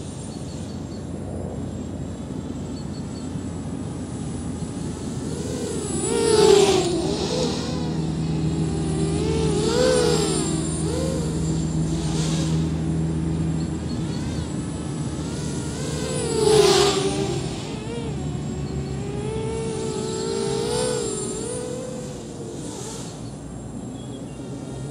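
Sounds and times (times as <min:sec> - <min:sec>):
quadcopter motors whining: 0:00.0 - 0:24.9.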